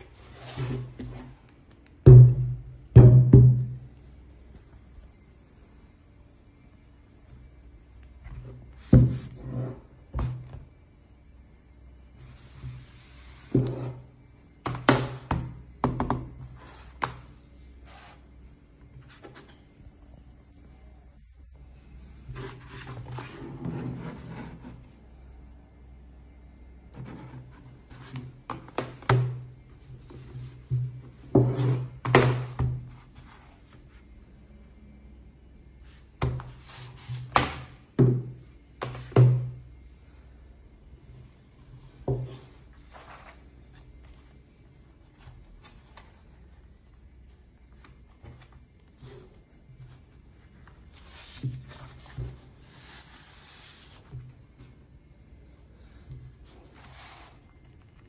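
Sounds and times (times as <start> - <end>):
cardboard rubbing and sliding: 0.1 - 1.3, 22.3 - 24.9, 47.8 - 54.2, 56.4 - 57.8.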